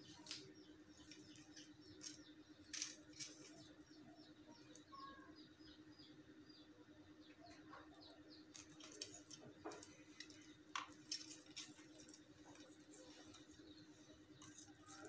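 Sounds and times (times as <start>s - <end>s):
low steady hum: 0.0s - 15.0s
small bird chirping: 0.0s - 15.0s
plastic ribbon rustling: 0.1s - 3.7s.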